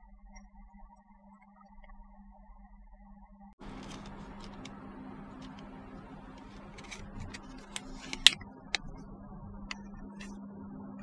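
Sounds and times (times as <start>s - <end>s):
steady low hum: 0.0s - 11.0s
plastic parts clicking and tapping: 3.6s - 8.9s.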